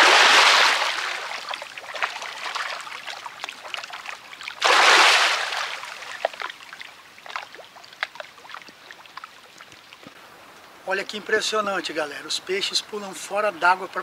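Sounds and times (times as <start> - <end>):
fish splashing at water surface: 0.0 - 9.8.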